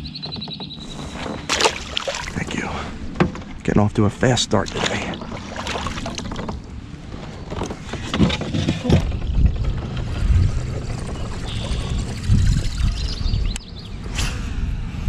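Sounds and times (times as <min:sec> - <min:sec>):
faint water sounds: 0:00.9 - 0:07.2
low thumps of gear: 0:06.0 - 0:13.6.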